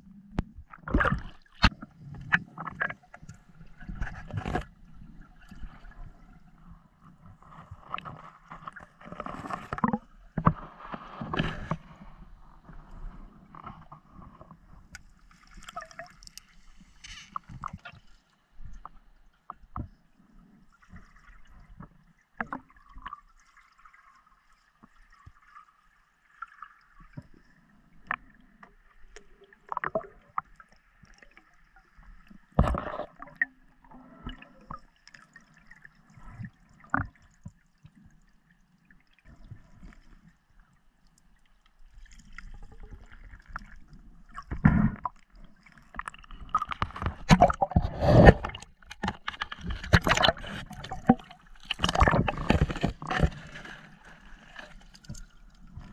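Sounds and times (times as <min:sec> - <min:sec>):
small underwater clicks and knocks: 0:00.2 - 0:55.9.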